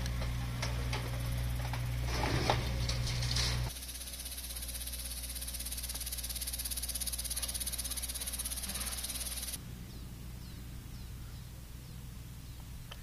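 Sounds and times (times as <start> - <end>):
insects trilling: 3.7 - 9.6.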